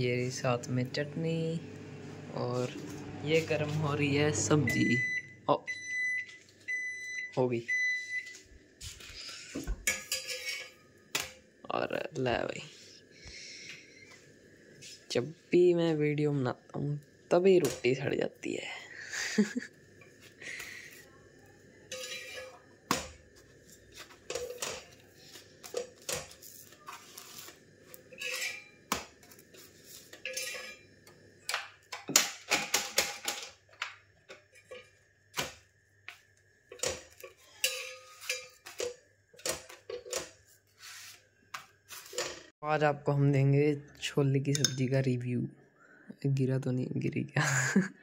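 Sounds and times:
plates pots and cutlery clattering: 9.5s - 11.4s, 21.9s - 23.3s, 23.9s - 26.4s, 28.0s - 30.9s, 31.5s - 35.6s, 36.7s - 40.4s.

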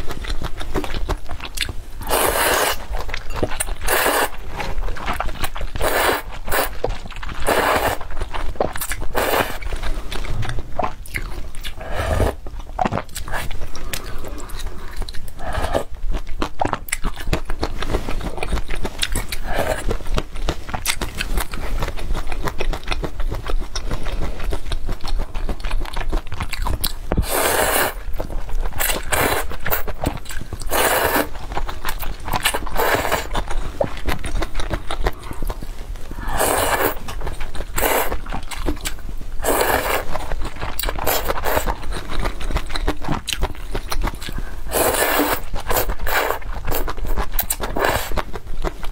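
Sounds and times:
chewing noodles: 0.0s - 48.9s
slurping noodles: 2.0s - 3.0s, 3.8s - 4.7s, 5.8s - 6.8s, 7.4s - 8.1s, 8.8s - 10.6s, 11.6s - 12.4s, 15.4s - 15.9s, 27.2s - 28.1s, 28.8s - 29.9s, 30.6s - 31.4s, 32.4s - 33.4s, 36.1s - 37.1s, 37.7s - 38.2s, 39.4s - 41.8s, 44.7s - 48.2s.

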